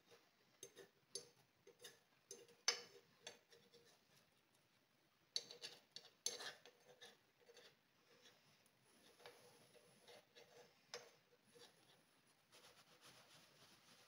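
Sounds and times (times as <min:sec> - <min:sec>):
fork tapping and scraping a pan: 0:00.0 - 0:04.0, 0:05.3 - 0:08.4, 0:09.0 - 0:11.8.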